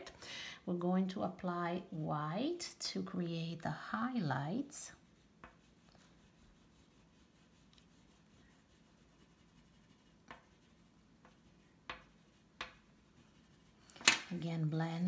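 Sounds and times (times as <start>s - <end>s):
pastel rubbing on paper: 4.9s - 13.9s.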